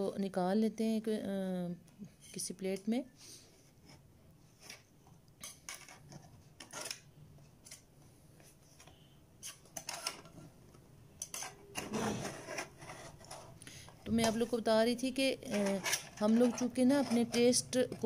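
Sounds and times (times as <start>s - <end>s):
knife scraping a metal pan: 5.4s - 7.0s, 11.2s - 13.6s, 15.4s - 18.0s.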